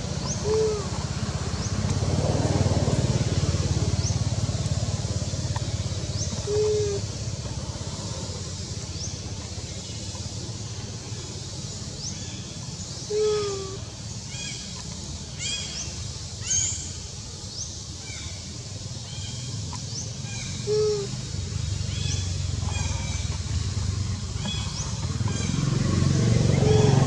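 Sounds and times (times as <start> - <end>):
low engine rumble: 0.0 - 27.0
low falling bird calls: 0.1 - 2.0, 5.4 - 7.5, 12.2 - 15.7, 19.7 - 23.4.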